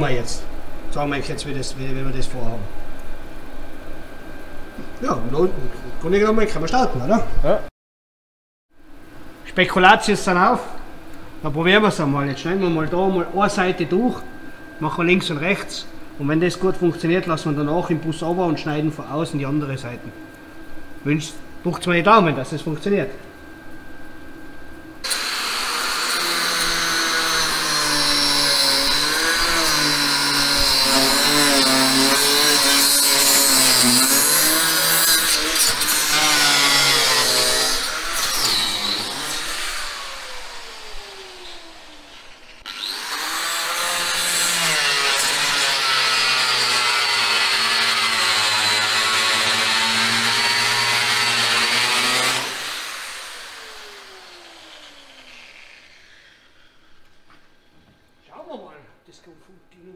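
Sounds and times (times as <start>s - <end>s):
angle grinder cutting steel: 25.0s - 57.7s.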